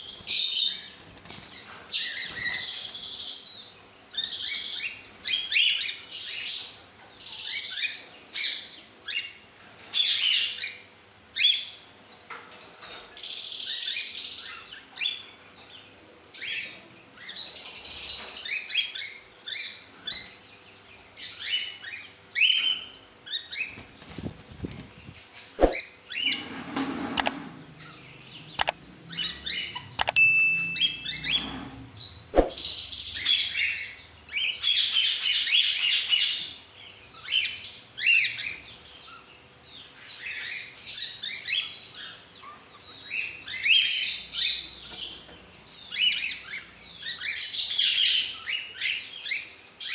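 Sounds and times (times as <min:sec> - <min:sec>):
cockatiels chirping and screeching: 0:00.3 - 0:11.8, 0:30.8 - 0:49.9.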